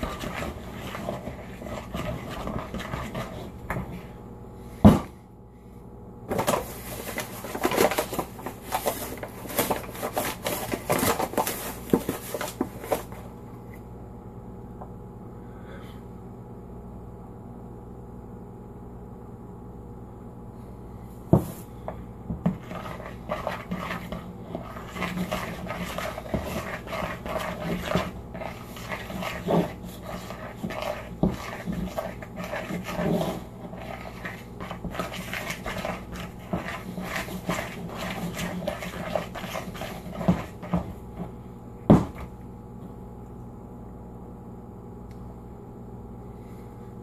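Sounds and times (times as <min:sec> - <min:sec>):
flour mixed in plastic bowl: 0:00.0 - 0:04.2, 0:06.3 - 0:13.2, 0:22.4 - 0:42.4.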